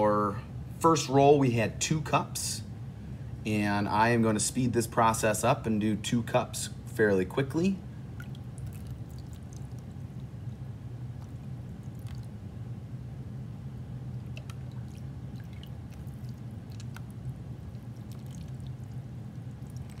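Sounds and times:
steady low hum: 0.0s - 20.0s
water drips and splats: 8.2s - 10.3s, 14.2s - 20.0s.

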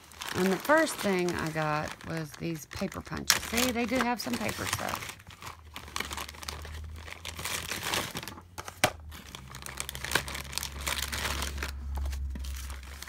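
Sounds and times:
plastic bags crinkling: 0.0s - 13.0s.

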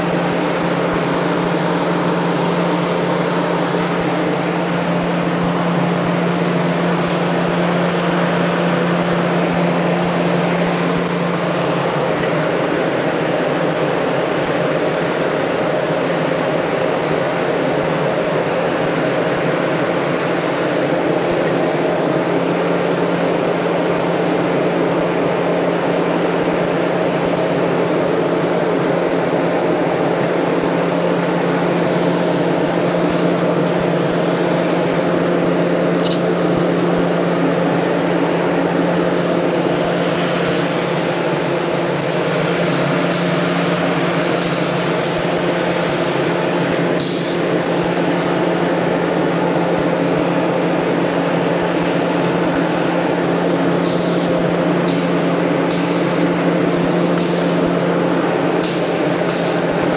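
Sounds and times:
steady machine hum: 0.0s - 59.9s
sharp bursts of air hiss: 43.1s - 43.8s, 44.4s - 45.4s, 47.0s - 47.4s, 53.8s - 56.3s, 57.2s - 57.7s, 58.6s - 59.7s
paint spray gun hissing: 43.1s - 45.4s, 47.0s - 47.5s, 53.8s - 56.4s, 57.1s - 57.7s, 58.6s - 59.8s.

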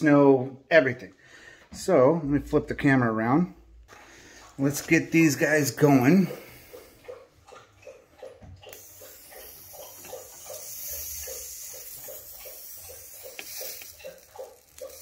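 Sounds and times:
heater flame hissing: 8.7s - 15.0s.

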